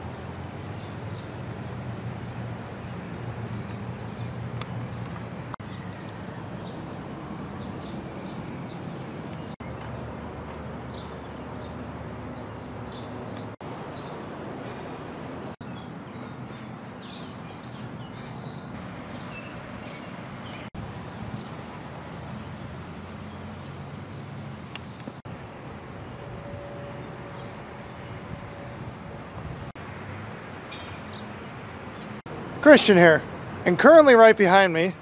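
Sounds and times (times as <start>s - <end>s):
small birds chirping: 0.1s - 1.9s, 2.8s - 21.6s, 22.3s - 25.2s, 30.7s - 32.3s.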